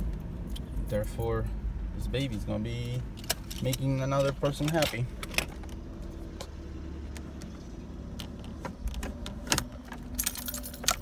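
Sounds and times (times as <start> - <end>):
engine and road rumble: 0.0 - 11.0
keys jingling and clicking: 10.0 - 11.0.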